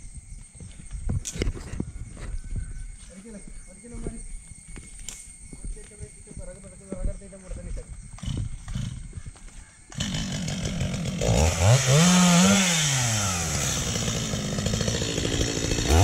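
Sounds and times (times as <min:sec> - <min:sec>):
chainsaw revving and idling: 0:08.2 - 0:09.0, 0:09.9 - 0:16.0.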